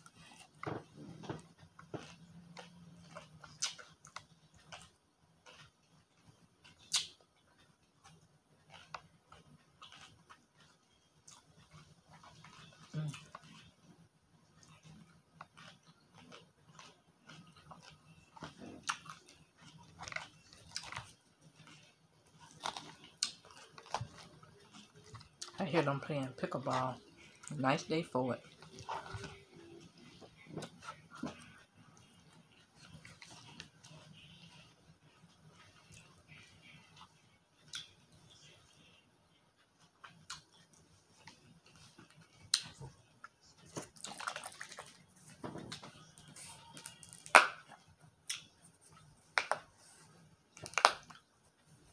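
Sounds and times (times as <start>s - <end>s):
salad being chewed: 0.0s - 38.7s, 39.6s - 51.9s
lip smacks and clicks: 1.3s - 5.7s, 6.6s - 13.7s, 37.7s - 38.0s, 40.0s - 45.1s, 46.7s - 49.8s, 50.5s - 51.2s.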